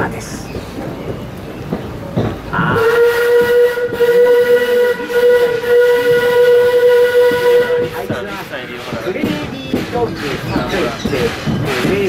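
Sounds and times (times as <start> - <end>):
steam locomotive whistle: 2.7 - 9.5.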